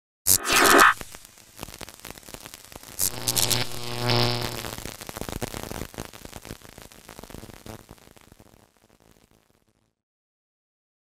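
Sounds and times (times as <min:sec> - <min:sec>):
electric buzz: 0:00.3 - 0:07.8
electrical crackling and sputtering: 0:00.3 - 0:08.0.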